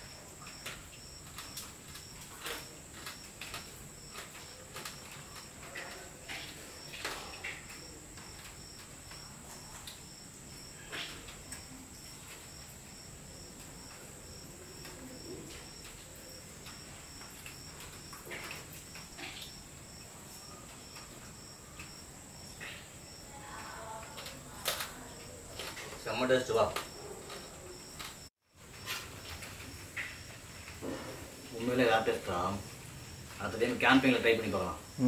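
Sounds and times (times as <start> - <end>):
crickets trilling: 0.0 - 35.0
pulsed insect chirp: 0.0 - 35.0.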